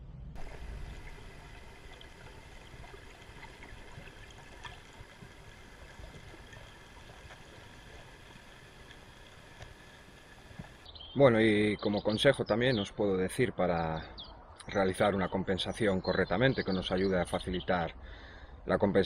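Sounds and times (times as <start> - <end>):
underwater hiss: 0.4 - 10.8
faint underwater clicks: 0.4 - 10.9.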